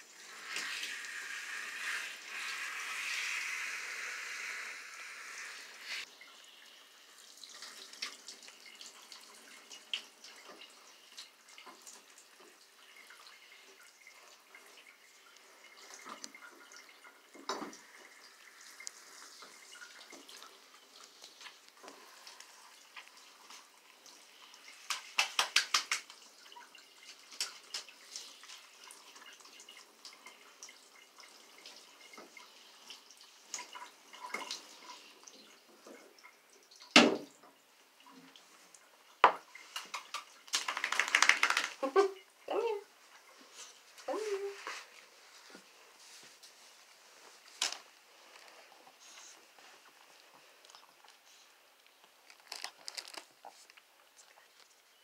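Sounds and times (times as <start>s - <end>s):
shower spray of water: 0.0s - 10.6s, 17.4s - 26.3s, 39.6s - 42.8s
water dripping: 0.0s - 55.0s
taps and splashes: 24.8s - 26.3s, 36.8s - 37.6s, 39.2s - 42.1s.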